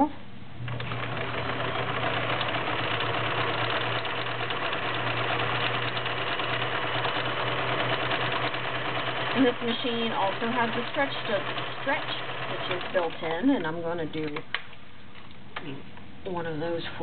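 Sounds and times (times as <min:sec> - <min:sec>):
sewing machine running: 0:00.7 - 0:13.7.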